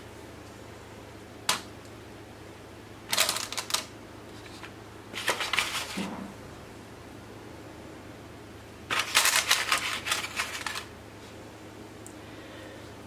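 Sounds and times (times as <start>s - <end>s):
crinkly paper rustling: 3.1s - 6.0s, 8.9s - 10.9s.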